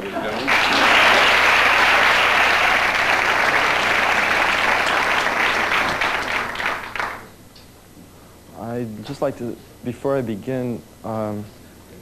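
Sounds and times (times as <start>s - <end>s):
audience applauding: 0.0s - 7.3s.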